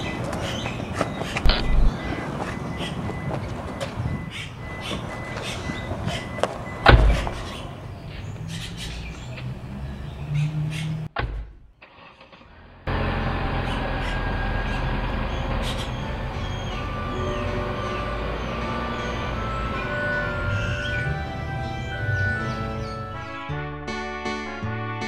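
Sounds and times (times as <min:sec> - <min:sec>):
outdoor street ambience: 0:00.0 - 0:23.7
car door slamming: 0:01.3 - 0:07.8
held tones: 0:01.4 - 0:07.0.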